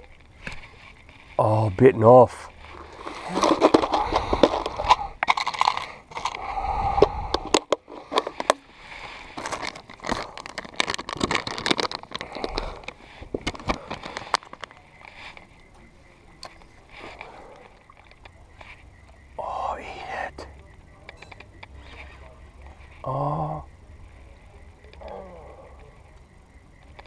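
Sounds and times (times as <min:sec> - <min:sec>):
plastic packet crinkling: 0:02.7 - 0:06.4, 0:07.5 - 0:15.3.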